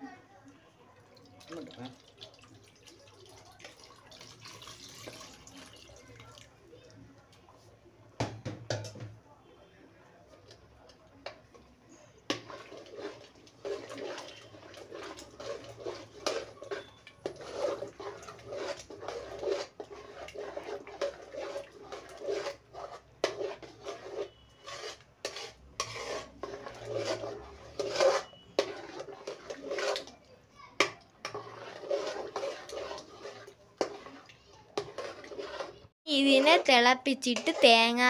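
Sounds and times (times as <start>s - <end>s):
spoon scraping a metal pot: 11.2s - 30.2s, 30.8s - 38.0s.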